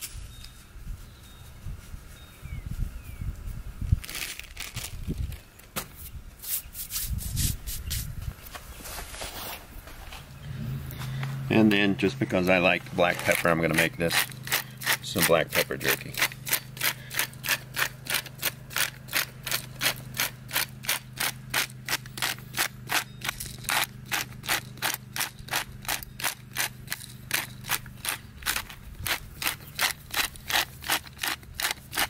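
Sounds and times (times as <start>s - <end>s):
pepper grinder clicking: 12.9s - 32.0s.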